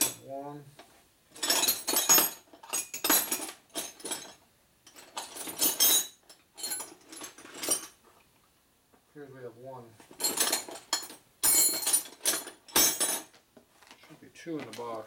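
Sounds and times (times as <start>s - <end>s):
metal wrenches clinking: 0.0s - 0.3s, 1.3s - 8.0s, 10.1s - 13.4s.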